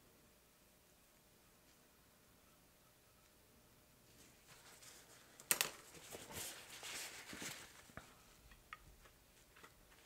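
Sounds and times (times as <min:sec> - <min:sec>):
cloth rustling: 0:04.1 - 0:08.4.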